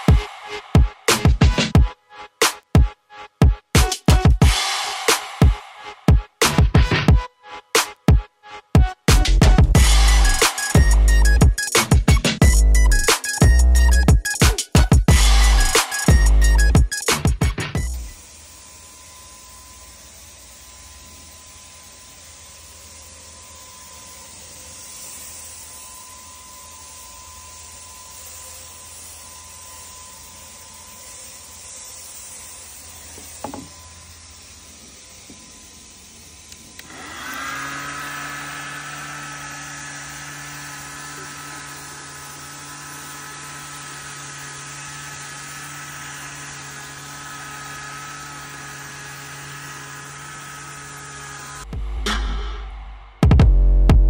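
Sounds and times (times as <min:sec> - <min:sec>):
small electric motor humming: 0:00.0 - 0:51.8
steady hiss: 0:29.9 - 0:36.9.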